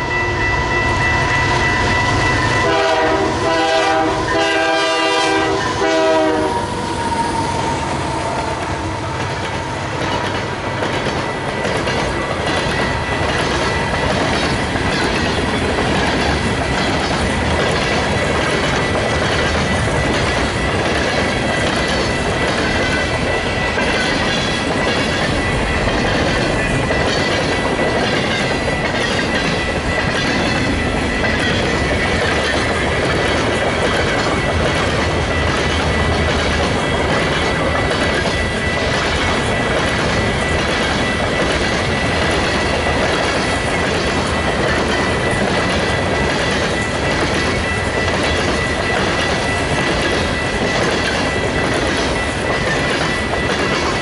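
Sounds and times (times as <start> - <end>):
high ringing tone: 0.0 - 3.4
locomotive horn: 0.0 - 9.8
train wheels clacking over rail joints: 2.4 - 54.0.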